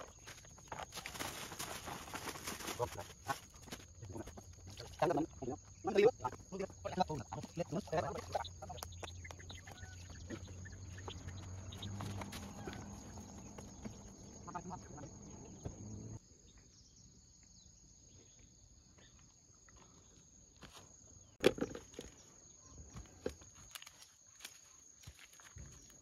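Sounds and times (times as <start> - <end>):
footsteps on gravel: 0.0 - 4.7, 6.4 - 14.5, 23.0 - 26.0
insects droning: 0.0 - 26.0.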